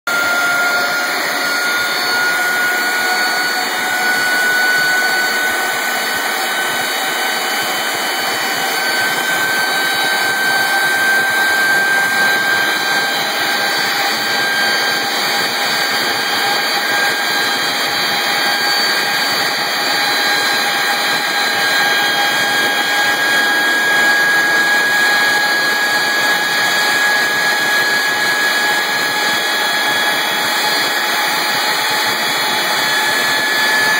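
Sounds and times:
jet engine running with rising whine: 0.1s - 33.9s.

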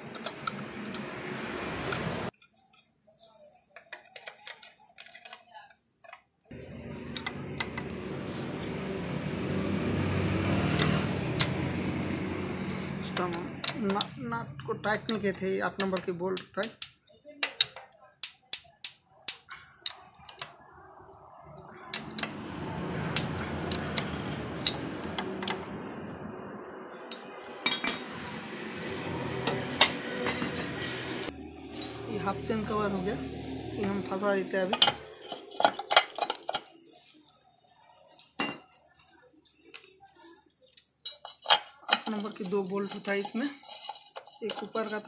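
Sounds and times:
mechanical hum: 6.5s - 14.6s
spanner clinking on bolts: 27.1s - 28.1s, 41.0s - 45.0s.

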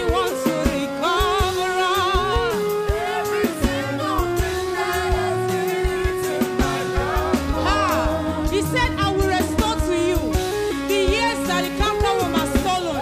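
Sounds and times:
band with steady drum hits: 0.0s - 13.0s
gospel singing with vibrato: 0.0s - 13.0s.

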